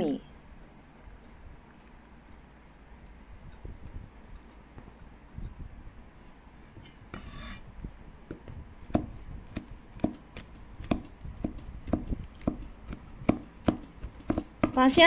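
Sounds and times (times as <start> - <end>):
brief scrape: 7.2 - 7.6
cleaver chopping on cutting board: 8.3 - 14.8.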